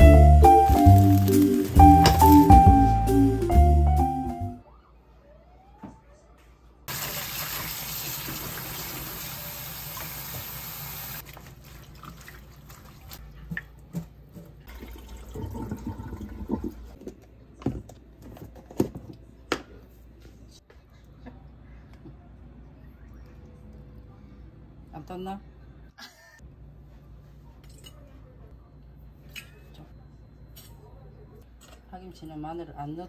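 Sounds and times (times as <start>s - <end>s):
tap water running into sink: 6.9s - 13.6s.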